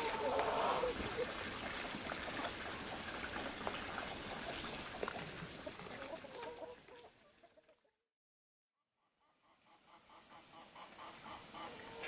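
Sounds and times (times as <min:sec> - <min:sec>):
chickens clucking: 0:00.0 - 0:01.3, 0:05.4 - 0:07.2, 0:10.5 - 0:12.0.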